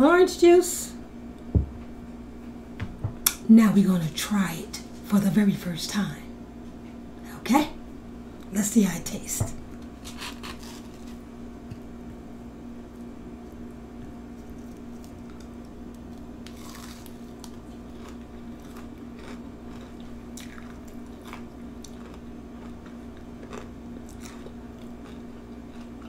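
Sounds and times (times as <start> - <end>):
low hum: 0.0 - 23.2
crisp crunching while chewing: 9.9 - 11.3, 14.3 - 26.0.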